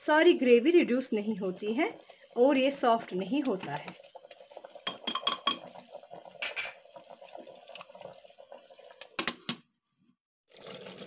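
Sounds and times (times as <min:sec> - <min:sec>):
gravy bubbling: 0:01.0 - 0:09.2
spoon clinking against metal pot: 0:04.9 - 0:05.7.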